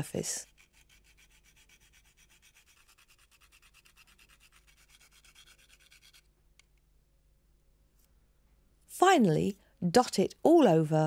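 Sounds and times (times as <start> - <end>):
nutmeg rasping on a metal grater: 0.0 - 6.3.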